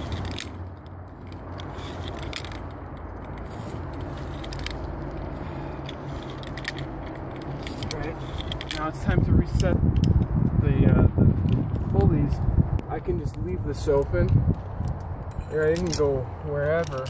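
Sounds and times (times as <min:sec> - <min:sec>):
carabiners clinking and scraping: 0:00.0 - 0:17.0
steady low rumble: 0:00.0 - 0:17.0.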